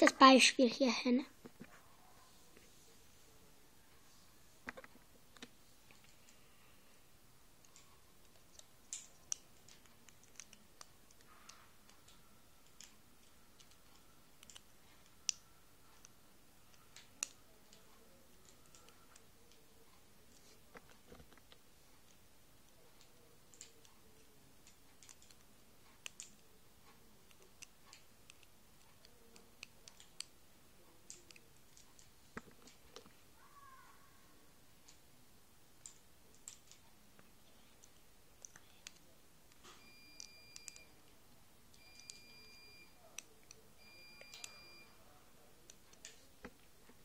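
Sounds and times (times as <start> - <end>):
small clicks and taps: 7.6 - 15.4.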